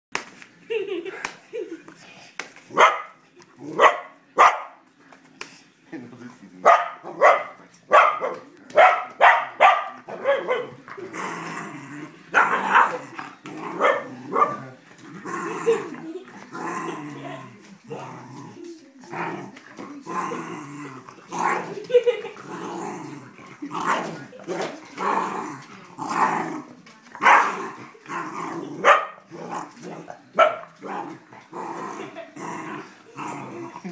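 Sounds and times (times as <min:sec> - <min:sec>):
dog growling: 0:10.1 - 0:33.9.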